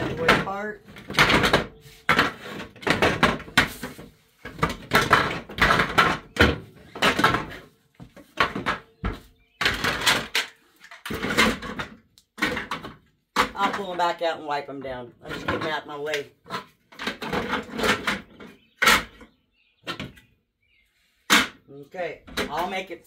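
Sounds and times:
hard plastic knocks and scrapes: 0.0 - 14.2, 14.8 - 20.3, 22.2 - 23.0.

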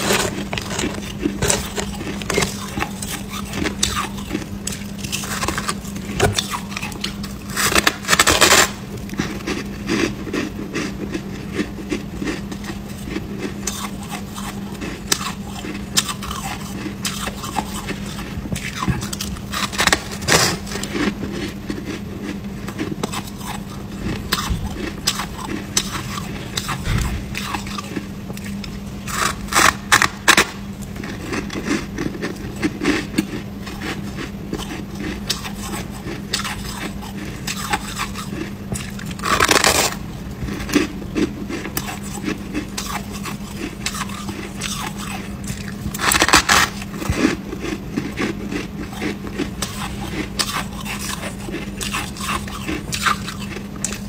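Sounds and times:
crackling chewing of ice: 0.0 - 54.0
ice crunching bites: 12.2 - 28.5, 37.5 - 54.0
low hum: 16.5 - 31.4.

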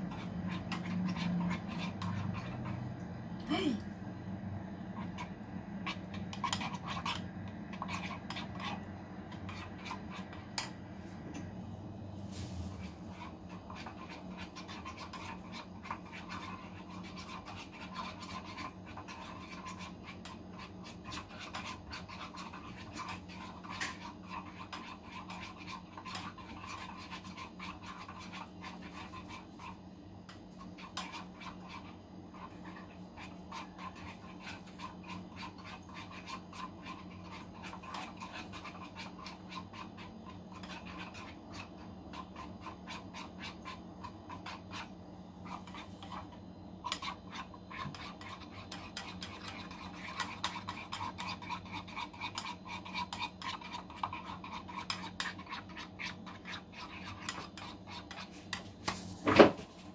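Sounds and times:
rapid scratching and rubbing: 0.0 - 3.0, 4.9 - 11.6, 12.2 - 59.9
steady low hum: 0.0 - 59.9.

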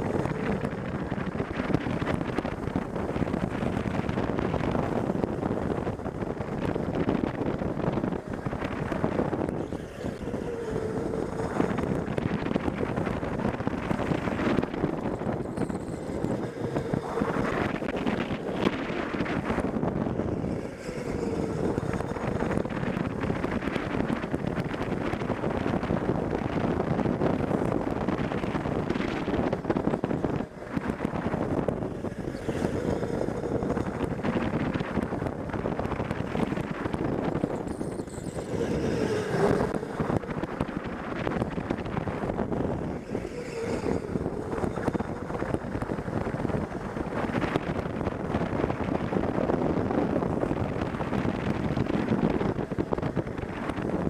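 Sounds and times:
go-kart motor whine: 0.0 - 54.0
wind buffeting microphone: 0.0 - 54.0.

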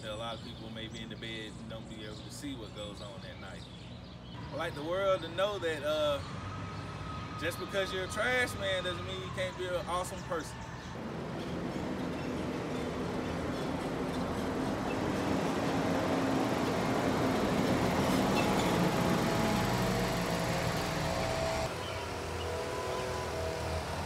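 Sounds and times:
garbage truck driving past: 10.6 - 24.0.

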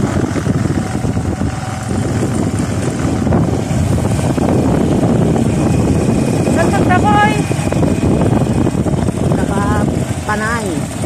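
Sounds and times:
vehicle engine and road noise: 0.0 - 11.0
wind buffeting microphone: 0.0 - 11.0.

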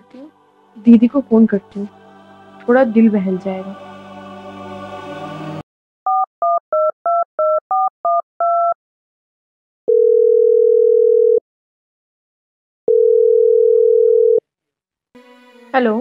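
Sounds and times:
phone keypad beeps: 6.1 - 8.8
phone ringing tone: 9.9 - 11.4, 12.9 - 14.4.

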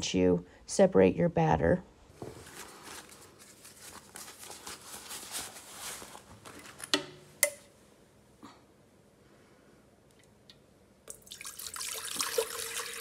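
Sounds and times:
rubber gloves rustling: 2.1 - 7.0.

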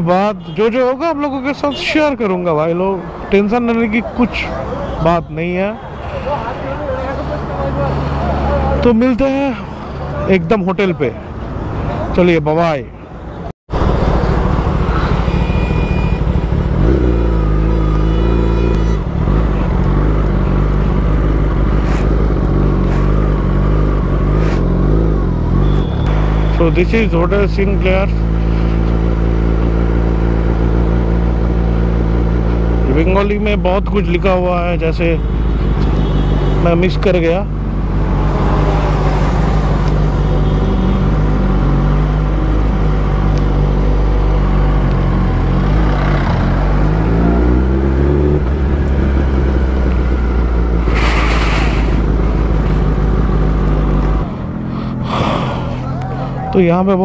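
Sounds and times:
motorcycle engine at low revs: 13.8 - 36.0, 39.4 - 54.6.

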